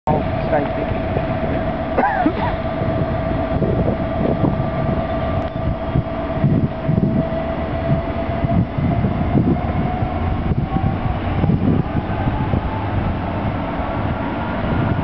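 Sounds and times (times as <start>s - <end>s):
diesel locomotive engine whine: 0.0s - 15.0s
low uneven engine rumble: 0.1s - 15.0s.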